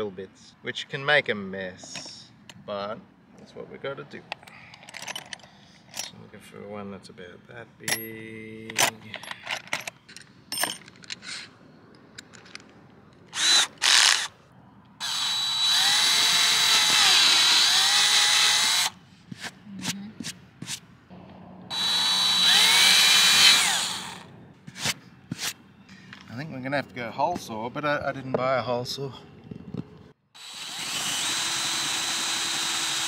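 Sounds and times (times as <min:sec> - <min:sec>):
cordless drill whining: 0:13.3 - 0:14.3, 0:15.0 - 0:19.0, 0:21.7 - 0:24.2, 0:30.4 - 0:33.0.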